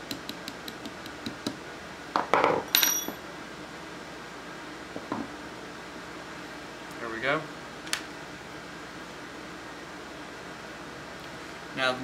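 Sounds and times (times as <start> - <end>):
metal pin clinking on block: 2.7 - 3.2.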